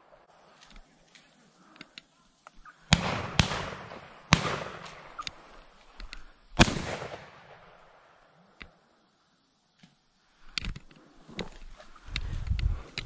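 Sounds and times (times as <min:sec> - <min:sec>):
shotgun shots with echo: 0:02.9 - 0:05.2, 0:06.6 - 0:07.7.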